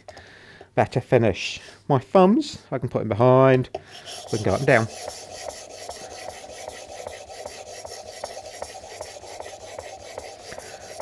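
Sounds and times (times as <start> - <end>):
blade scraping on whetstone: 3.9 - 11.0.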